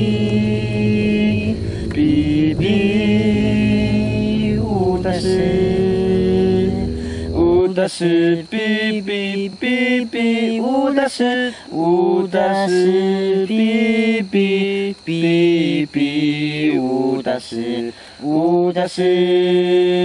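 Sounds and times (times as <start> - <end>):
low accompaniment: 0.0 - 7.8
chant-like singing: 0.0 - 20.0.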